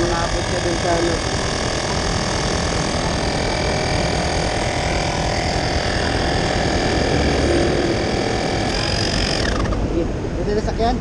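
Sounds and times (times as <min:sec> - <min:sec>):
electric air compressor humming: 0:00.0 - 0:10.2.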